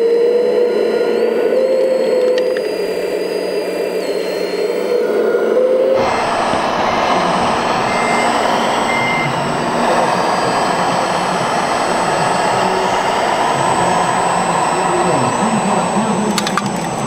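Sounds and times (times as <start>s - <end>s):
busy exhibition hall din: 6.0s - 17.0s
short high electronic beeps: 6.8s - 9.4s.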